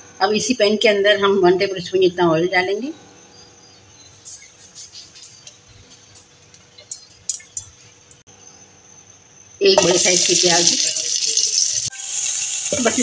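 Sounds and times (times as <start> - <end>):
oil crackling in frying pan: 5.2 - 8.2, 9.8 - 13.0.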